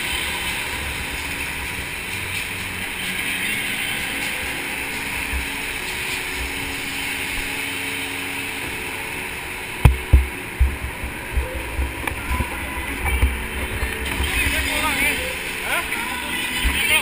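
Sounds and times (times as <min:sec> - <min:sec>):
soft low thumps: 0:09.7 - 0:14.6.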